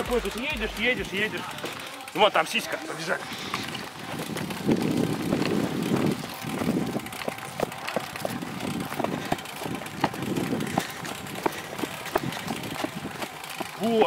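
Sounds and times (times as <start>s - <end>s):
bike clicking and rattling: 0.0s - 14.0s
footsteps on dirt path: 0.0s - 14.0s
wind buffeting microphone: 3.2s - 14.0s.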